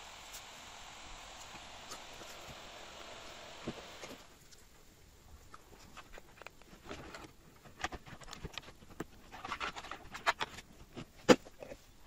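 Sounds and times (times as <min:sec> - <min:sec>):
plastic bottle and cup handled: 0:05.5 - 0:11.9.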